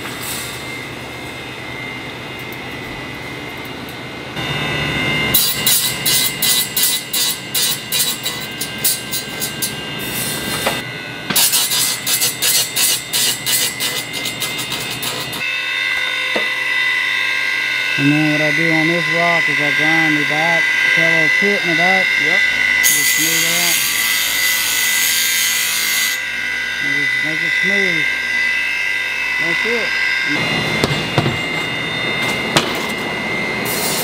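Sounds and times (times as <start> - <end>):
machine hum: 0.0 - 34.0
grinder grinding metal: 4.4 - 34.0.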